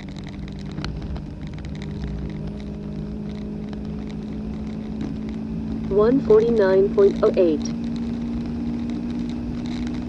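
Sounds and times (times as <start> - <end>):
car engine at high revs: 0.0 - 10.0
wind and road noise: 0.0 - 10.0.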